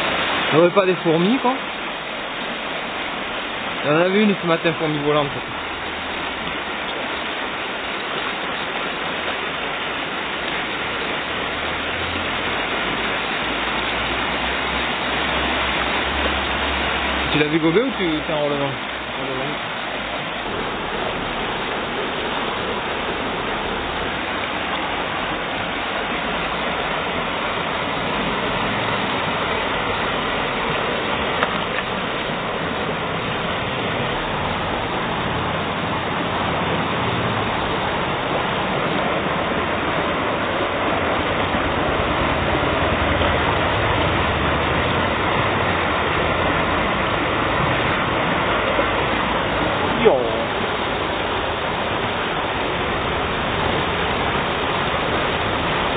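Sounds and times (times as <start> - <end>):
river water rushing over stones: 0.0 - 55.9.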